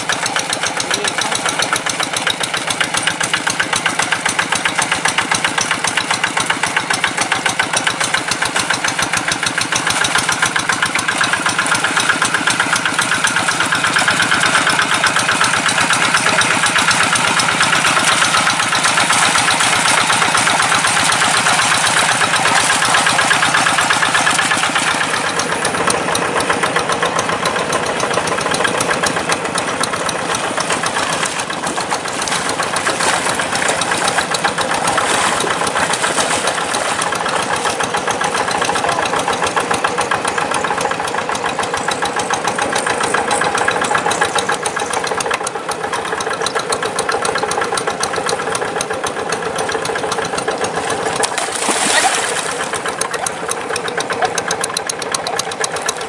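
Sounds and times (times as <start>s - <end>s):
hand tractor diesel engine: 0.0s - 56.0s.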